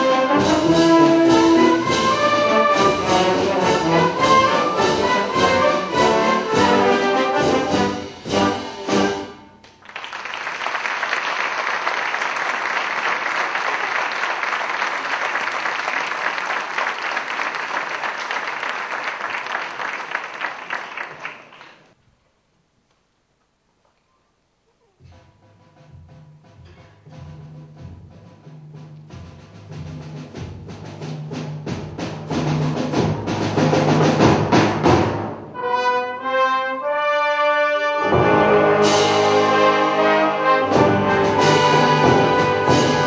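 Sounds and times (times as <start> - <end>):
wind band playing accented chords: 0.0 - 9.7, 33.0 - 43.0
audience applause: 9.7 - 22.0.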